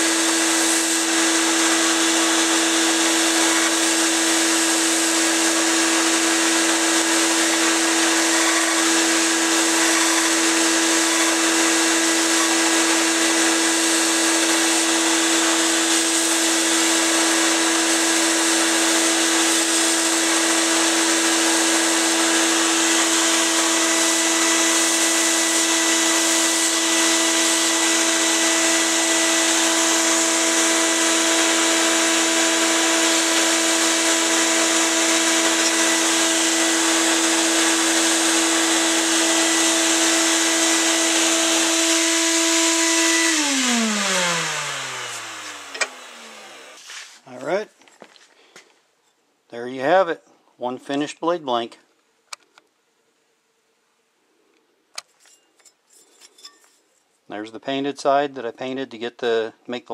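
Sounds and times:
bench power tool motor hum: 0:00.0 - 0:47.2
high hiss of band grinding metal: 0:46.6 - 0:47.2.

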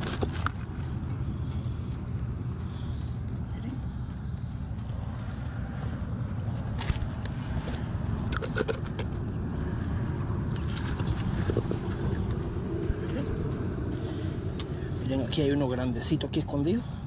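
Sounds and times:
stones and twigs scraping: 0:00.0 - 0:01.7
steady low rumble: 0:00.0 - 0:17.0.

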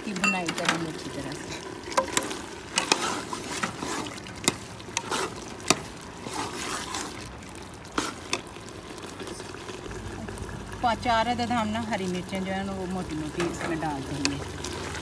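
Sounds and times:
chickpeas sizzling in oil: 0:00.0 - 0:15.0
metal spoon scraping a pot: 0:02.2 - 0:04.2.

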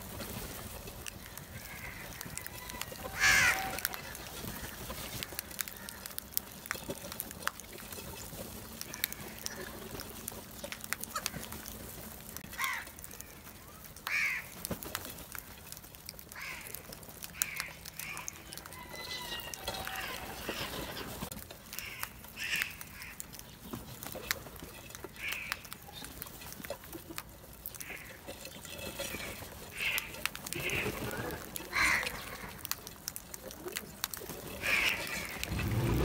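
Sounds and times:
birds pecking grain: 0:00.0 - 0:36.0
crows cawing: 0:01.4 - 0:04.7, 0:08.8 - 0:09.7, 0:12.5 - 0:13.4, 0:14.0 - 0:14.6, 0:16.3 - 0:20.8, 0:21.7 - 0:23.3, 0:25.1 - 0:25.6, 0:27.8 - 0:28.2, 0:29.8 - 0:32.6, 0:34.6 - 0:36.0.

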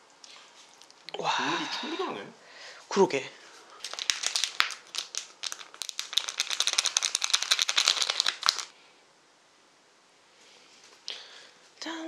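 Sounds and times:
plastic packet crinkling: 0:03.6 - 0:08.7.

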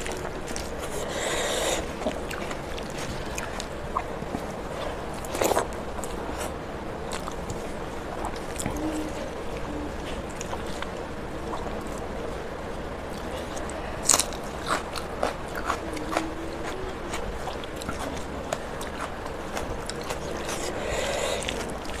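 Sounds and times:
chewing and lip smacks: 0:00.0 - 0:12.4, 0:13.1 - 0:22.0.

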